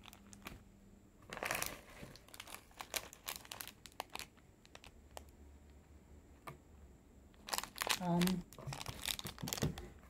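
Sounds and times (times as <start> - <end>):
plastic wrapper crinkling: 0.0 - 0.6, 1.3 - 5.3, 7.3 - 10.0.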